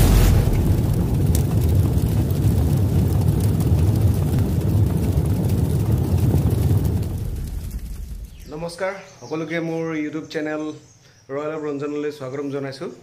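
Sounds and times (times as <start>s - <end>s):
brief whoosh: 0.0s - 1.1s
deep rumble: 0.0s - 8.9s.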